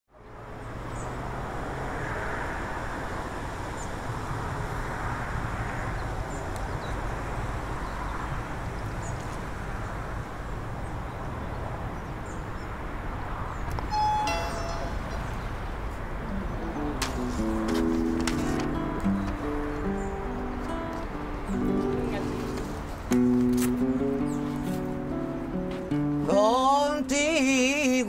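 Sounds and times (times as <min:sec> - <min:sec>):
traffic rumble: 0:00.1 - 0:28.0
cars passing: 0:00.2 - 0:27.9.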